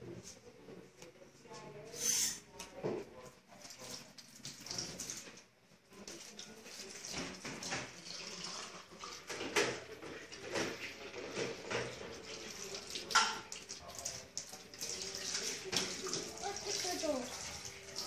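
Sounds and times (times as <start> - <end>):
water splashing over plastic cup: 3.6 - 5.4, 11.3 - 18.0
tap water running into sink: 3.7 - 5.4, 6.0 - 18.0.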